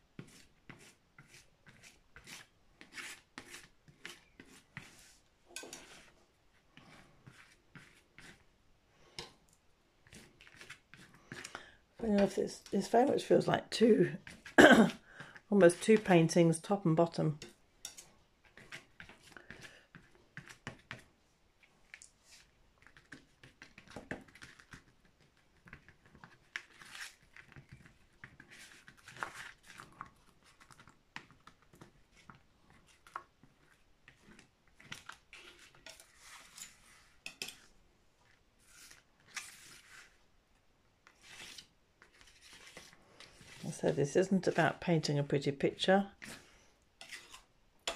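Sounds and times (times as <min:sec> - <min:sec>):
paintbrush strokes on canvas: 0:00.1 - 0:08.5, 0:35.3 - 0:37.2, 0:38.6 - 0:40.2, 0:41.2 - 0:45.0.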